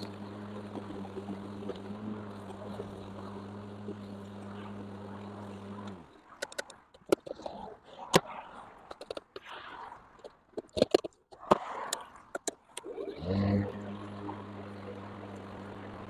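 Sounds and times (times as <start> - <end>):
electric lawn mower humming: 0.0 - 7.3, 13.1 - 16.0
sharp clicks and knocks: 0.0 - 8.3, 8.9 - 9.5, 10.2 - 16.0.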